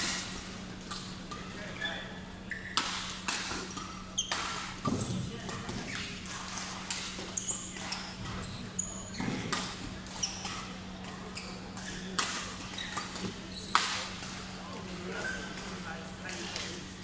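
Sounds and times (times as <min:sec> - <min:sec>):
shoes squeaking on court: 0:00.0 - 0:15.8
rackets striking shuttlecock: 0:02.5 - 0:10.8, 0:11.7 - 0:14.5.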